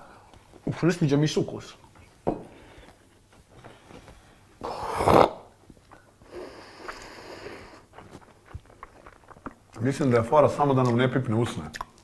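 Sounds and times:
hissing breath: 4.6 - 5.5, 6.2 - 7.9.

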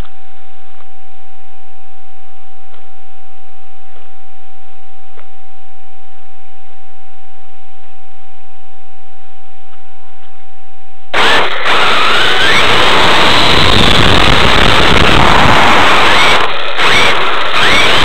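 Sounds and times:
steady electronic hum: 0.0 - 18.0
drivetrain and tyre noise: 11.2 - 18.0
electric motor whining: 11.2 - 18.0.

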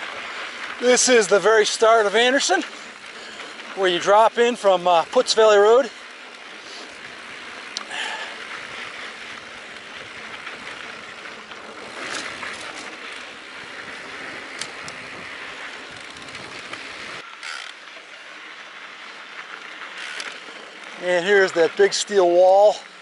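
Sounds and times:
clicks and knocks over bumps: 0.0 - 18.1
bike rattling: 0.0 - 23.0
bike tyres rolling on dirt: 0.0 - 23.0.

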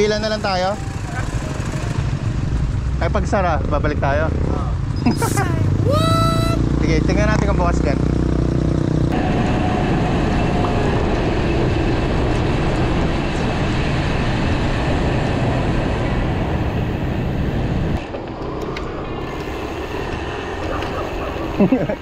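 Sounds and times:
road rumble: 0.0 - 22.0
wind rush on microphone: 9.1 - 22.0.

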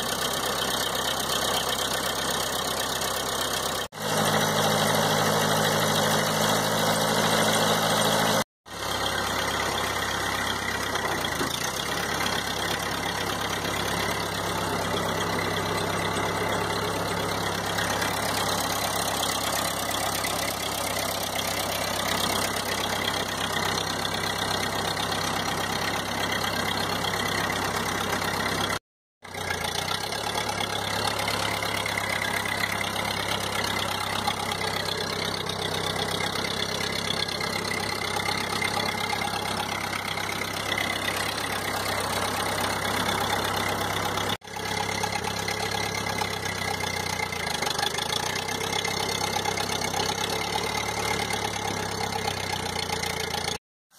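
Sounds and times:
tractor engine running: 0.0 - 53.6.

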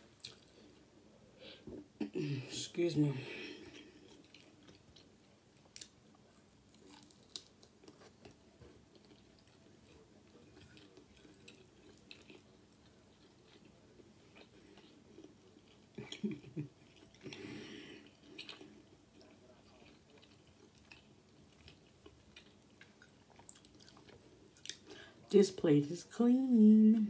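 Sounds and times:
chewing fried chicken: 3.6 - 25.1.

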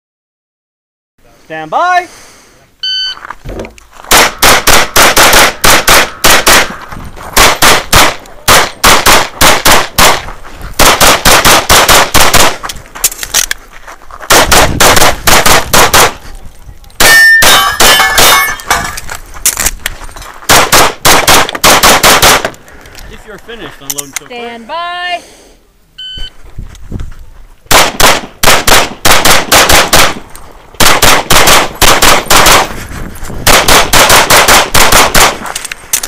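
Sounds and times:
rapid pistol shots: 4.1 - 6.7, 7.4 - 10.2, 10.8 - 12.6, 14.3 - 16.2, 20.5 - 22.5, 27.7 - 30.2, 30.8 - 32.7, 33.4 - 35.5
steel targets ringing: 17.0 - 19.0.

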